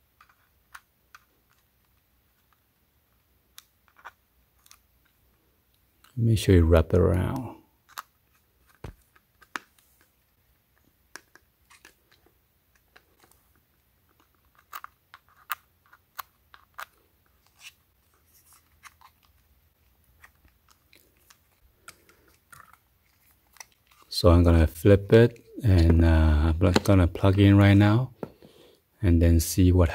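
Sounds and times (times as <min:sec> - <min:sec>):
fingers wrapping wire: 0:00.2 - 0:01.7, 0:03.5 - 0:05.2, 0:07.1 - 0:09.7, 0:11.1 - 0:19.4, 0:20.1 - 0:24.2.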